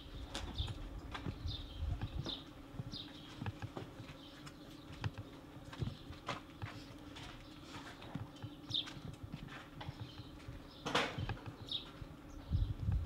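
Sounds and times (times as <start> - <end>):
steady low hum: 0.0 - 13.0
footsteps on concrete floor: 3.0 - 10.6.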